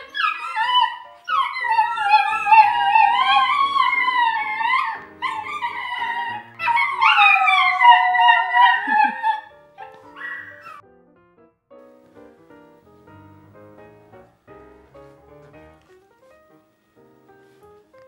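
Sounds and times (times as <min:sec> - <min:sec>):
dogs howling: 0:00.0 - 0:10.8
piano music: 0:00.0 - 0:18.0.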